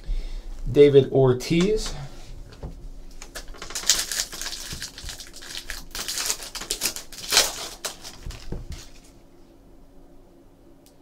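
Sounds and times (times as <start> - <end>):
foil wrapper crinkling: 3.1 - 9.2.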